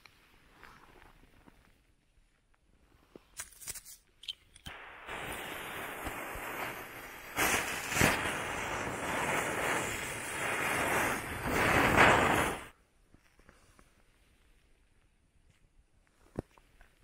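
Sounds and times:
firework bursts: 4.7s - 12.8s
firework hissing spray: 4.7s - 12.8s.

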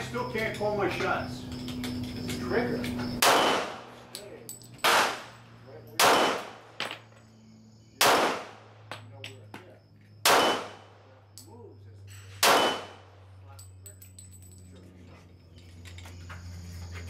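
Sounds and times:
pistol shots: 3.2s - 4.0s, 4.8s - 5.4s, 6.0s - 6.9s, 8.0s - 8.8s, 10.2s - 11.0s, 12.4s - 13.2s.

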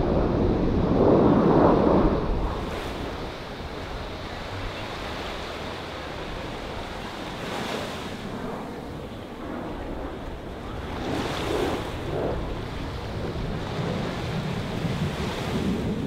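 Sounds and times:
small waves washing on beach: 0.0s - 9.2s, 10.2s - 16.0s
wind on microphone: 0.0s - 16.0s.

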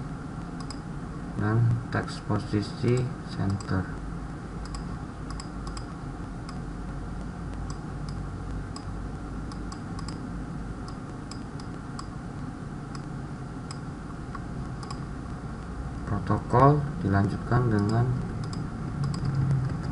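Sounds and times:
steady low hum: 0.0s - 19.9s
computer mouse clicks: 0.5s - 0.9s, 2.9s - 3.8s, 4.6s - 6.6s, 9.5s - 10.2s, 10.8s - 12.2s, 13.7s - 15.0s, 17.2s - 19.9s.

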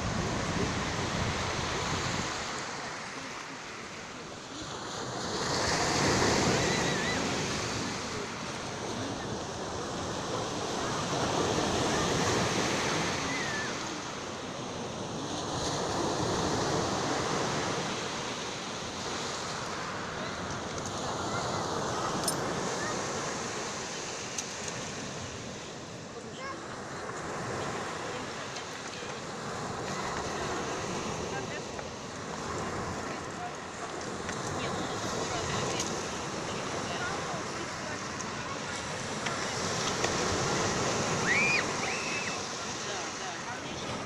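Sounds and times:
wind rumbling on microphone: 0.0s - 2.5s
surf on pebble beach: 0.0s - 44.0s.

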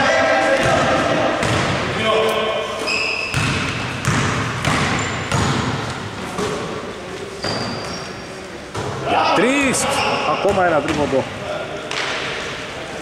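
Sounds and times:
sneakers squeaking on court: 2.8s - 6.6s, 7.3s - 9.0s
basketball bouncing on hardwood floor: 3.3s - 5.8s.

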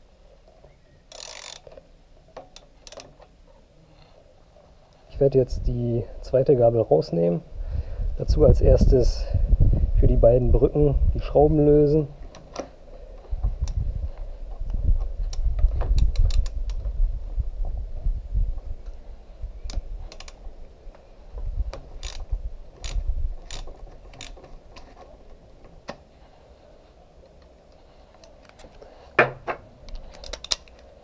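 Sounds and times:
socket ratchet clicking: 1.1s - 1.8s, 2.5s - 3.2s, 15.3s - 16.8s, 19.7s - 20.4s, 22.0s - 24.4s, 29.9s - 30.8s
tool and hands thumping: 29.2s - 29.7s.

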